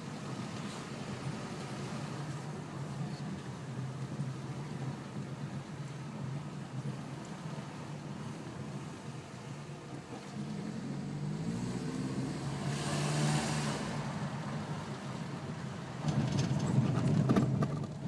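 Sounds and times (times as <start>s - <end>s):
car engine revving from inside: 10.4s - 14.2s
tyres rumbling over cobblestones: 14.0s - 18.0s.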